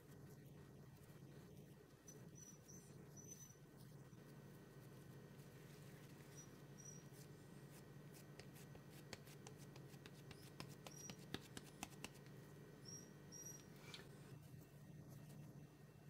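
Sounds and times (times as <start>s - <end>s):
low steady hum: 0.0s - 16.0s
faint high chirps: 2.0s - 4.3s, 6.0s - 7.3s, 12.8s - 14.2s
hands patting dough: 7.7s - 12.4s.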